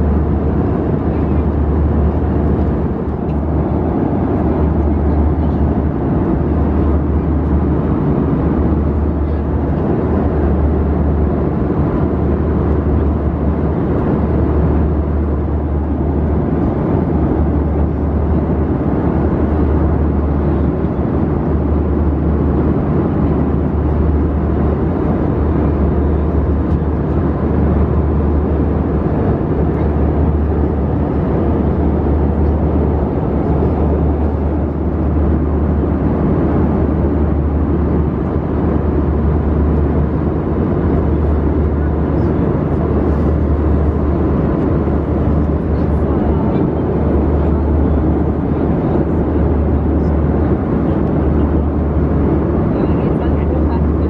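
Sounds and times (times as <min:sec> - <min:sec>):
airliner cabin drone: 0:00.0 - 0:54.0.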